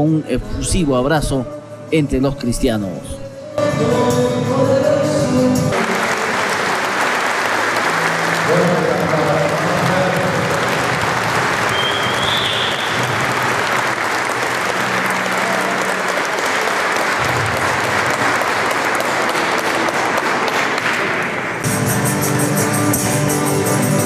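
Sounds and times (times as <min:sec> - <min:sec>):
crowd clapping: 0:05.7 - 0:24.0.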